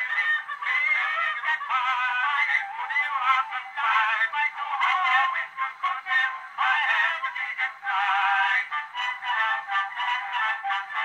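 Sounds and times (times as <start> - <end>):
phonograph vocal duet with orchestra: 0.0 - 11.0.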